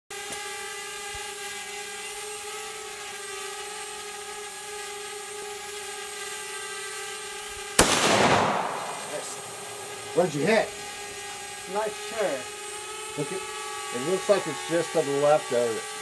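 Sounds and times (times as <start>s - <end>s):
drone propellers humming: 3.9s - 16.0s
rifle shot with echo: 7.8s - 10.2s.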